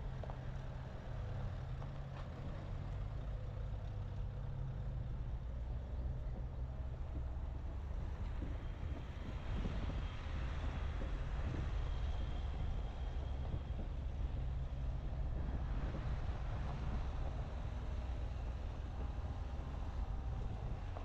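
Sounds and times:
car engine and road rumble: 0.0s - 21.0s
wind noise on microphone: 7.1s - 21.0s.

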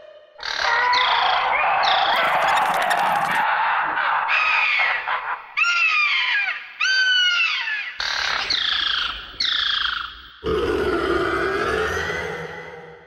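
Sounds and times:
low long creature call: 10.4s - 13.0s.

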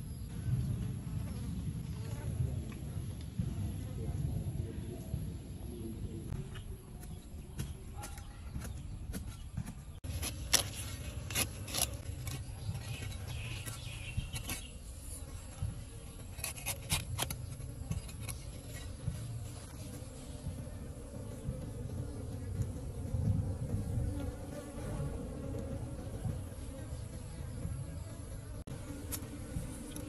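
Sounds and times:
bees buzzing: 10.1s - 30.0s.

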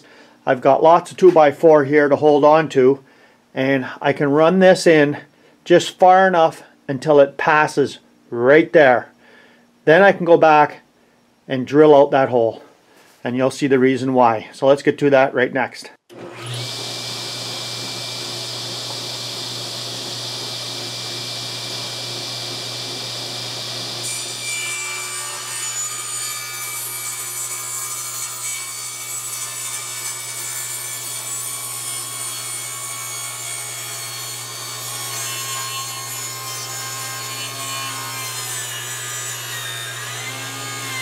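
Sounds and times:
saw blade cutting wood: 16.1s - 41.0s
table saw running: 16.1s - 41.0s.

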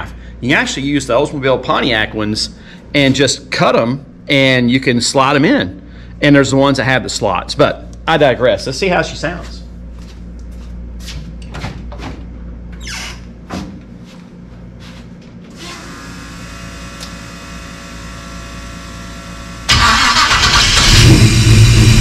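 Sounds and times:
faint steady hum: 0.0s - 19.9s
footsteps: 9.3s - 12.2s, 13.8s - 15.4s
car engine running loud: 19.7s - 22.0s
starter motor cranking engine: 19.7s - 22.0s.

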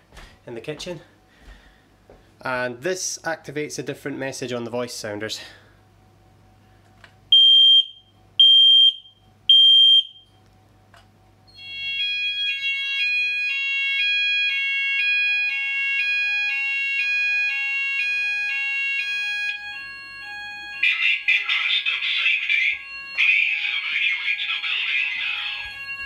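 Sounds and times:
alarm beeps: 7.3s - 10.3s, 11.5s - 26.0s
two-tone alarm sounder: 7.3s - 10.3s, 11.5s - 26.0s.

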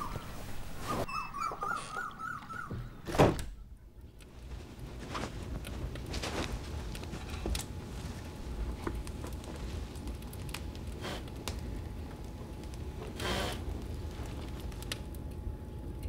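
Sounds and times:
high warbling animal call: 0.0s - 3.0s.

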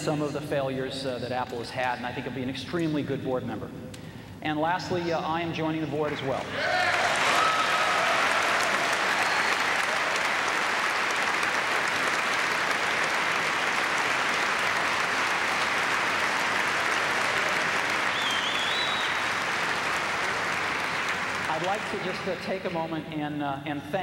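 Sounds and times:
audience cheering: 6.5s - 22.1s
large audience applauding: 6.5s - 22.5s.

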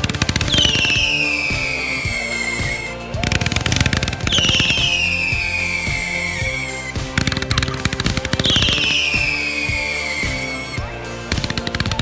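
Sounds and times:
fireworks popping: 0.0s - 10.6s
music: 0.0s - 12.0s
firework whistle falling in pitch: 4.3s - 6.8s.

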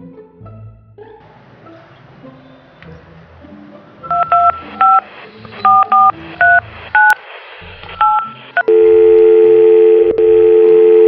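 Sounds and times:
telephone keypad beeps: 4.1s - 5.0s, 5.6s - 7.2s, 8.0s - 11.0s
telephone line tone: 4.1s - 5.0s, 8.0s - 11.0s.

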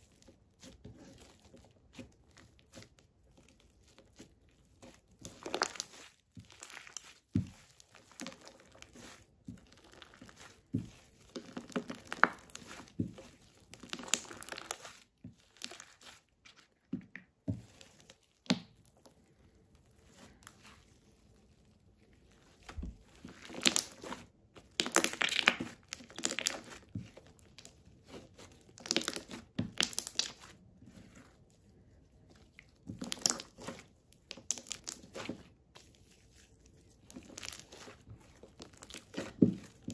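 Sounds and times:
hands squishing sticky slime: 0.0s - 39.9s.

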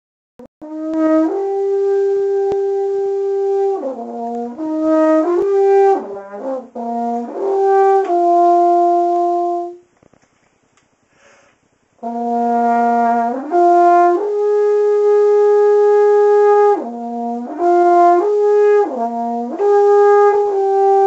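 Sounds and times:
french horn solo: 0.6s - 9.9s, 12.0s - 21.0s.

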